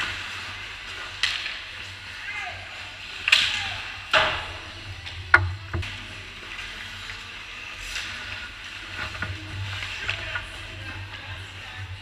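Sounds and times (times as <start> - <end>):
hockey sticks and puck clacking: 0.0 - 2.0
low hum in rink: 0.0 - 12.0.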